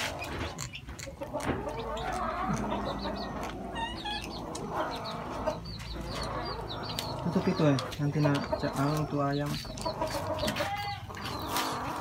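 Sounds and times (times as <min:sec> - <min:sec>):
chewing clicks: 0:00.5 - 0:05.0
kittens growling and mewing: 0:01.2 - 0:07.5.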